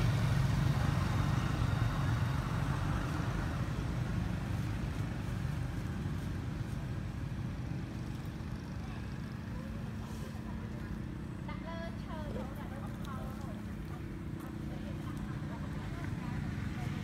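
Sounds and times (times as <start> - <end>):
vehicle engine rumbling: 0.0 - 17.0.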